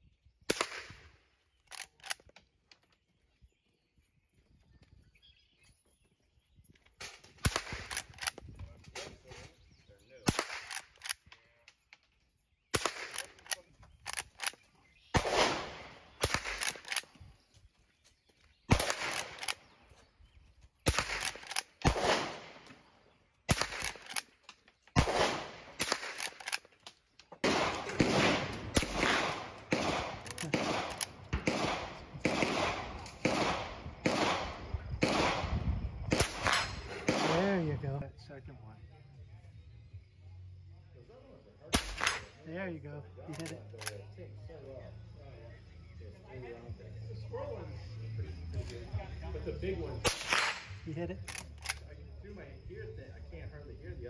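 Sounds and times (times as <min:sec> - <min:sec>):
rifle shots: 0:00.5 - 0:02.2, 0:07.0 - 0:08.4, 0:10.2 - 0:11.3, 0:12.7 - 0:17.2, 0:18.7 - 0:19.8, 0:20.8 - 0:26.7, 0:27.4 - 0:37.7, 0:41.7 - 0:42.4, 0:50.0 - 0:51.8
rifle lever cycling: 0:01.7 - 0:02.4, 0:07.8 - 0:08.4, 0:13.0 - 0:14.7, 0:16.2 - 0:17.1, 0:18.8 - 0:19.6, 0:21.0 - 0:21.8, 0:23.6 - 0:24.4, 0:25.8 - 0:26.7, 0:43.3 - 0:44.0.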